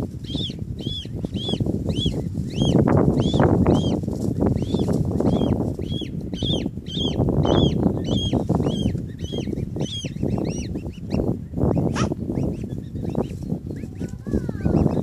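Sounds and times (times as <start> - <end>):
cygnets peeping: 0.0 - 15.0.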